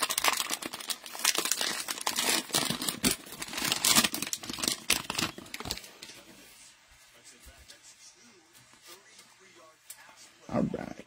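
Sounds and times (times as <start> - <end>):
cellophane wrapper crinkling: 0.0 - 6.1.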